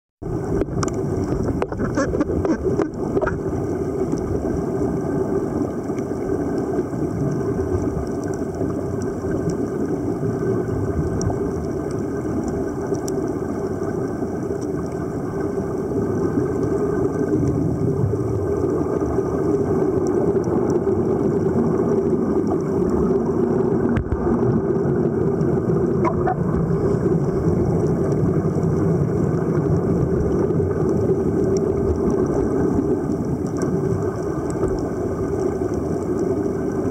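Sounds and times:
low underwater rumble: 0.2s - 36.9s
faint click: 0.6s - 2.0s.

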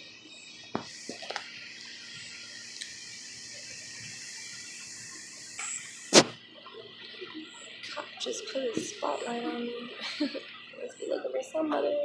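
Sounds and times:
night insects shrilling: 0.0s - 12.0s
sharp crack: 5.6s - 6.4s.

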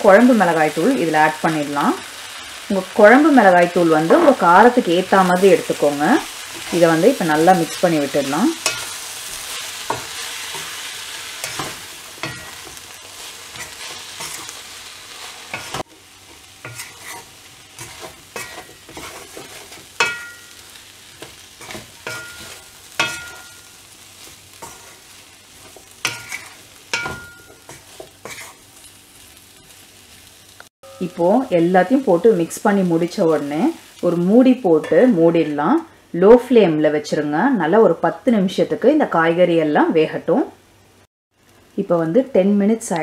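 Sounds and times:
oil sizzling in a frying pan: 0.0s - 35.8s
wooden spoon scraping a pan: 6.2s - 28.9s.

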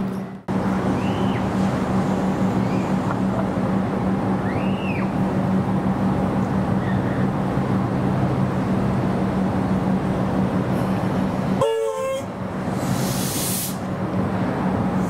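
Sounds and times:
train horn blast: 11.6s - 12.3s
brief hiss: 12.8s - 13.8s.

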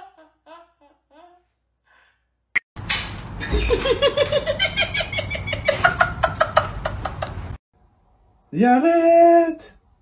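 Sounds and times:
person laughing: 3.4s - 7.3s.

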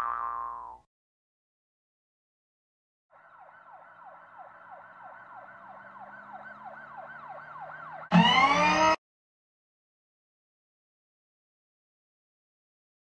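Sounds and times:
ambulance siren yelping: 3.2s - 9.0s
loud falling tones: 8.1s - 9.0s.

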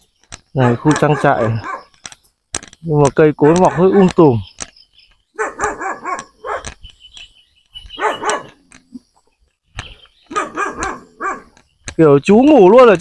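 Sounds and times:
dog barking: 0.6s - 1.9s, 5.4s - 6.8s, 8.0s - 8.6s, 10.3s - 11.6s.

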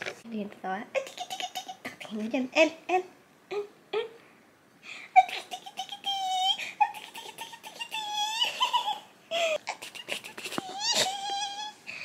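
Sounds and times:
baby giggling: 1.0s - 2.0s, 5.2s - 11.8s
baby squealing happily: 10.6s - 11.8s.

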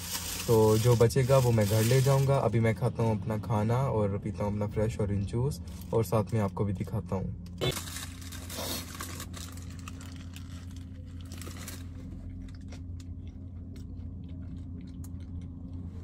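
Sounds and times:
paper wrapper crinkling and tearing: 0.0s - 2.5s, 7.6s - 12.8s
low hum inside car: 0.0s - 16.0s
chewing: 12.3s - 16.0s.

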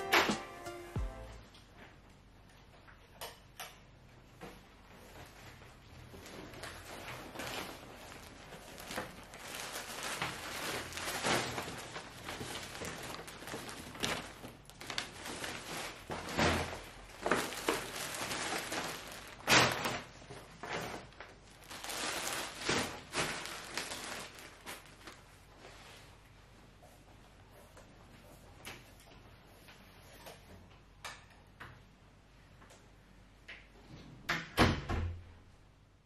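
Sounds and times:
shopping bags rustling: 4.8s - 26.3s.

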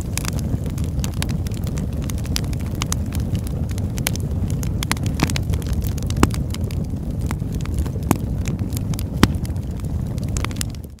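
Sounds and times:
low rumble of burning: 0.0s - 11.0s
wood fire crackling and popping: 0.0s - 11.0s.

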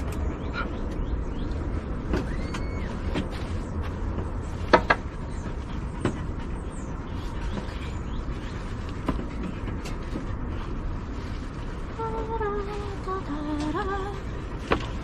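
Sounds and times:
steady low rumble: 0.0s - 15.0s
squeaky rising-and-falling tone: 2.1s - 3.7s.

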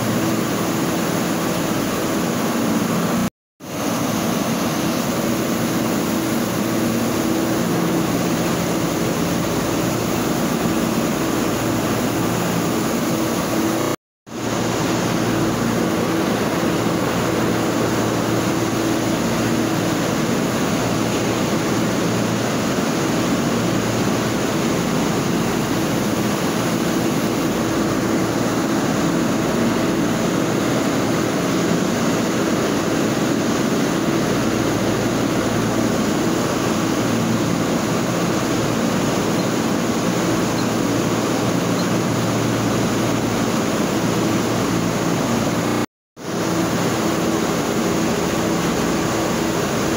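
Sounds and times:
factory machinery drone: 0.0s - 49.9s.

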